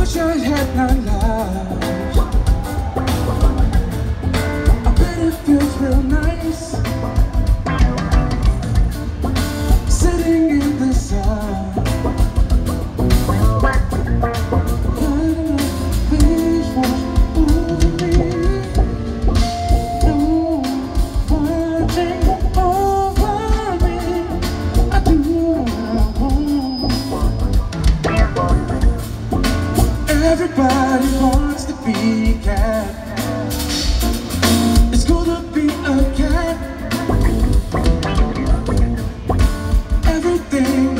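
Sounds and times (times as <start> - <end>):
man singing: 0.0 - 3.7, 4.7 - 7.3, 9.8 - 12.5, 14.8 - 27.5, 30.0 - 39.0, 39.7 - 40.9
live band playing: 0.0 - 40.9.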